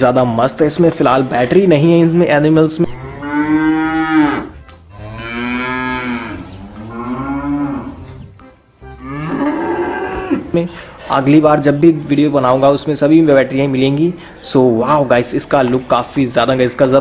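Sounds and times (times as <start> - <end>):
cows mooing: 2.8 - 8.2, 9.0 - 10.5.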